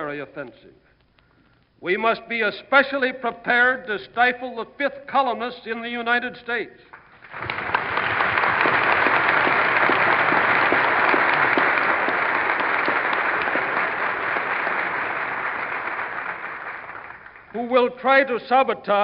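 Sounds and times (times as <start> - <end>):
audience applauding: 6.9 - 17.6.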